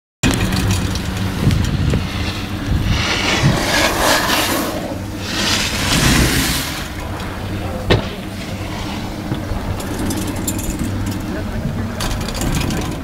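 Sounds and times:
wind buffeting microphone: 0.2 - 13.0.

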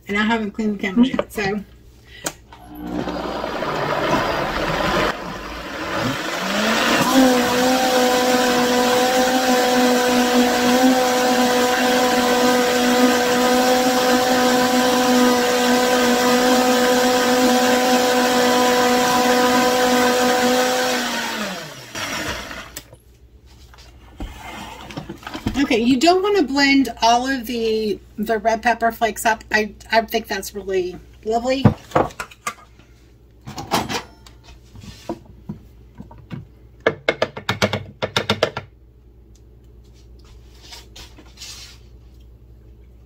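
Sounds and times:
blender motor whining: 2.5 - 22.9.

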